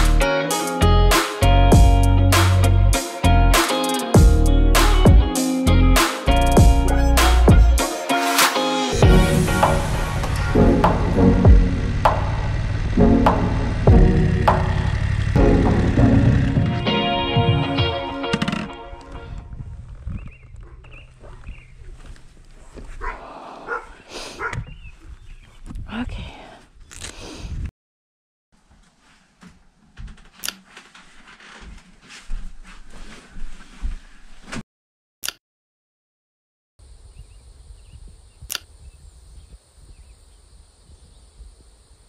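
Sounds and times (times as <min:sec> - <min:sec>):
wind rumble on microphone: 0:19.2 - 0:22.1, 0:24.5 - 0:26.3, 0:27.4 - 0:27.7, 0:37.0 - 0:42.0
animal calling: 0:23.0 - 0:24.8
sharp clicks: 0:38.5 - 0:38.7.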